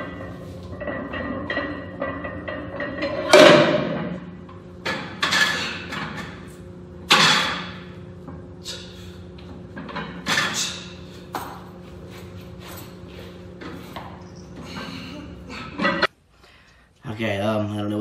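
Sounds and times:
barbell plates knocking and scraping: 0.0 - 4.2.

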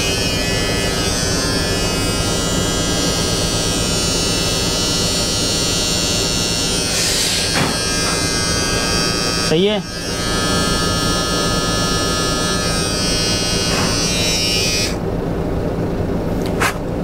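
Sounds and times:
beard trimmer buzzing: 0.0 - 15.0.

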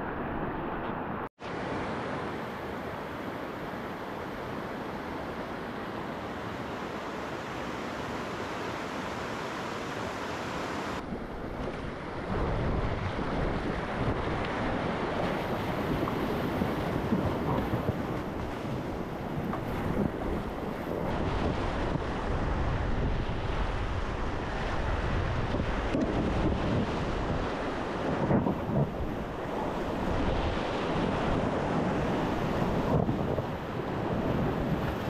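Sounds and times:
flowing stream water: 0.0 - 11.0
wind buffeting the microphone: 11.0 - 35.0.

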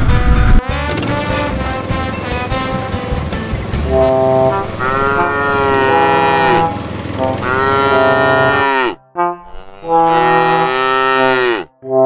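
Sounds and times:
cow mooing: 3.9 - 11.7.

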